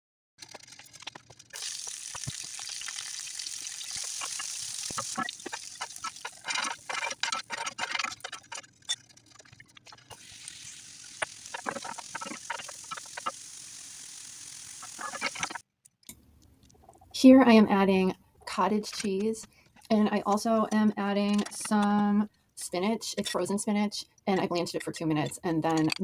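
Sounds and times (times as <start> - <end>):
vegetables sizzling in a skillet: 1.6 - 6.5, 10.2 - 15.6.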